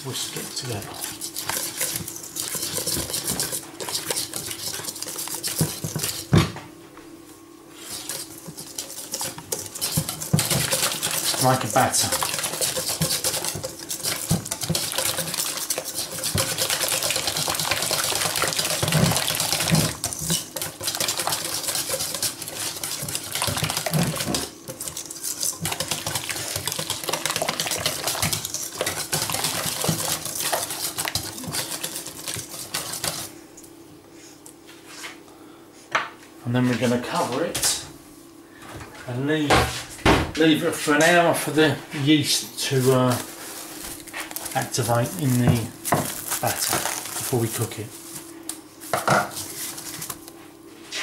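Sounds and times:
whisk scraping metal bowl: 0.1 - 6.3, 7.7 - 33.3.

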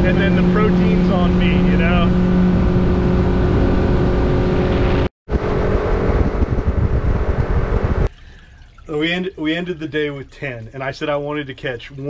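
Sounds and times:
wind on microphone: 0.0 - 8.1
outboard motor droning: 0.0 - 8.6.

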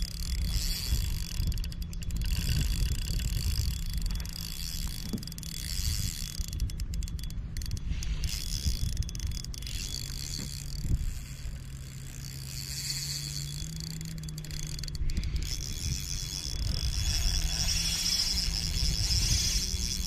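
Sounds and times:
fishing reel ticking and whirring: 0.0 - 20.0
wind rumble on microphone: 0.0 - 20.0.

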